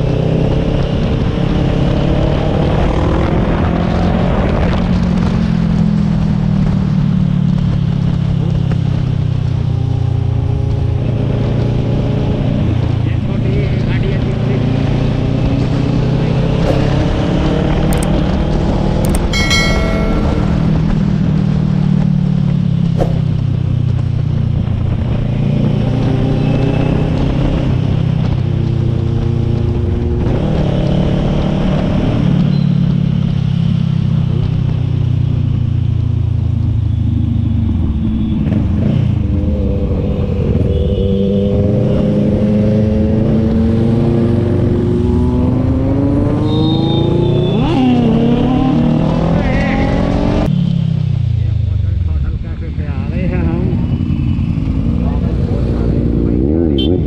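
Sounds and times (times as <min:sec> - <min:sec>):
rushing wind: 0:00.0 - 0:50.5
motorcycle engine revving: 0:00.0 - 0:57.0
brief high tone: 0:19.2 - 0:21.4.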